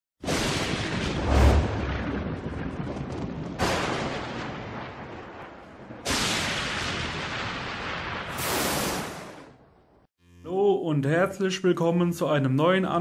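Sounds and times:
booming crashes: 0:00.2 - 0:09.6
low rumble: 0:01.0 - 0:03.6.

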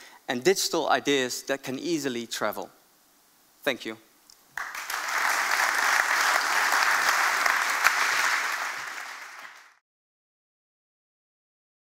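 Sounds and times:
audience applauding: 0:04.6 - 0:09.8.

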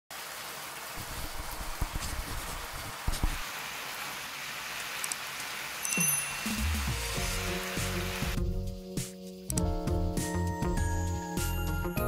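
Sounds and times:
food sizzling in a pan: 0:00.1 - 0:09.5.

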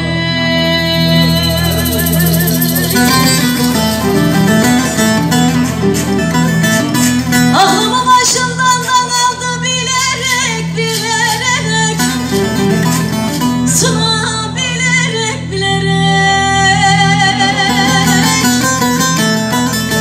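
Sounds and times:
woman singing wavering lines: 0:00.0 - 0:05.2, 0:07.4 - 0:12.7, 0:13.7 - 0:19.4
long wavering held note: 0:00.0 - 0:05.6
plucked string accompaniment: 0:00.0 - 0:15.2, 0:15.8 - 0:20.0.

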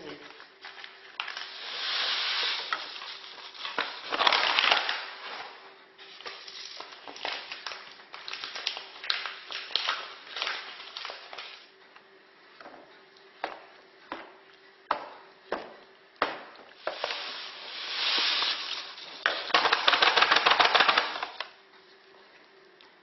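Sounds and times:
paper bag crinkling: 0:00.0 - 0:11.7, 0:16.8 - 0:21.4
small crackles: 0:00.1 - 0:11.7.

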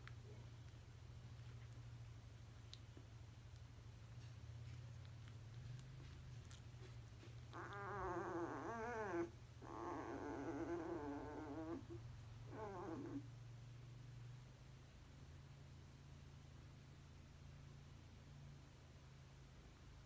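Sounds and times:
steady low hum: 0:00.0 - 0:20.0
puppy whining in its sleep: 0:04.2 - 0:13.5.

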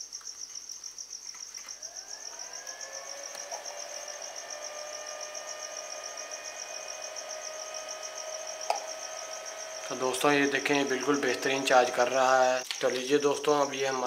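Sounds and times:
cricket chirping: 0:00.0 - 0:14.0
cooling fan whine: 0:01.7 - 0:12.7.

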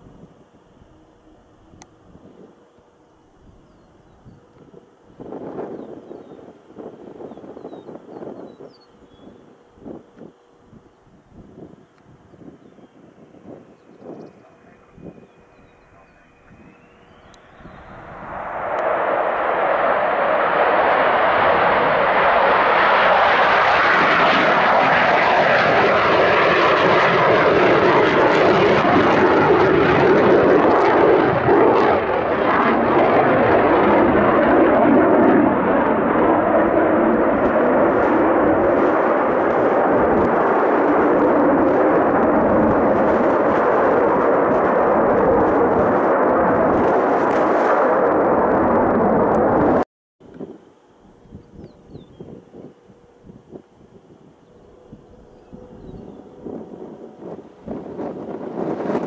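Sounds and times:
faint shifting whine: 0:00.0 - 0:22.7
fighter jet engine roar: 0:00.0 - 0:59.0.

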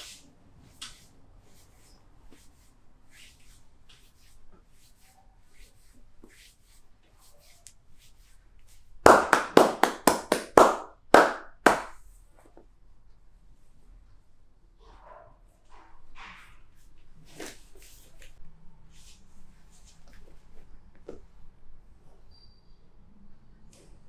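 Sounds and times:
hands slapping on body: 0:09.1 - 0:12.0.

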